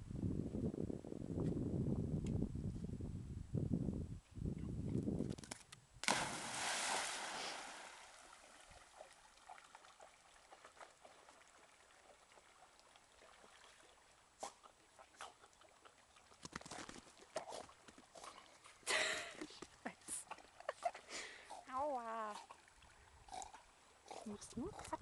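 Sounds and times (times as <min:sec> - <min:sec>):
dog splashing into water: 0:06.0 - 0:11.3
water sloshing: 0:06.0 - 0:14.1
water lapping: 0:06.1 - 0:16.4, 0:20.0 - 0:25.0.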